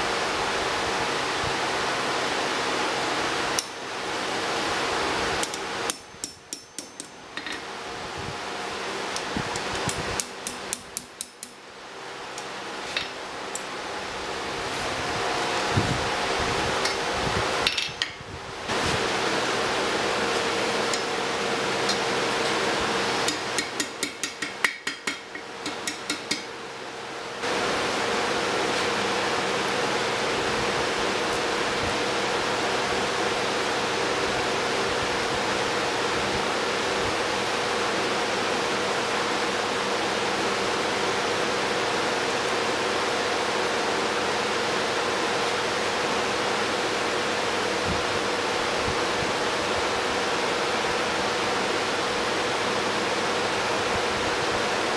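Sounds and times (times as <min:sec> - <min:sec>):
hammer striking metal on anvil: 0:05.4 - 0:07.6, 0:17.6 - 0:18.2, 0:23.2 - 0:26.5.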